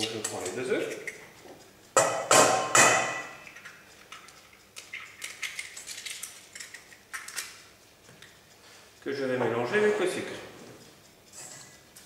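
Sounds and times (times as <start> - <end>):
egg knocking on metal bowl: 2.0 - 3.5
eggshell crackling: 3.4 - 7.6.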